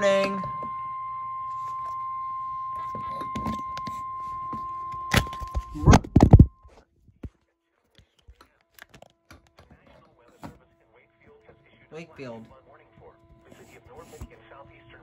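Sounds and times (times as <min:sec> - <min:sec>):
steady high alarm tone: 0:00.0 - 0:06.8.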